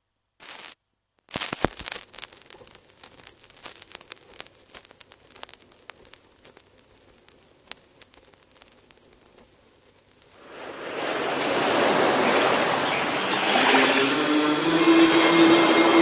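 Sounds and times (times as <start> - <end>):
vinyl clicks and pops: 0.4 - 10.4.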